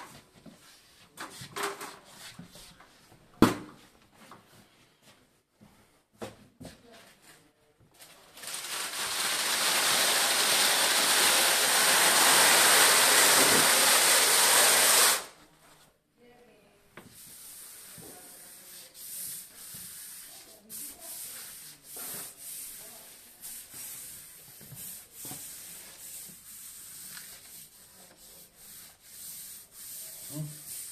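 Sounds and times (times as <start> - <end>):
paper rubbing and rustling: 8.0 - 10.6
loud steady hiss: 8.9 - 15.3.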